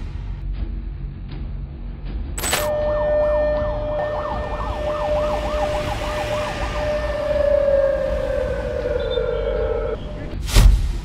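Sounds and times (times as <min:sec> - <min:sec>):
warbling air-raid siren: 0:02.7 - 0:10.4.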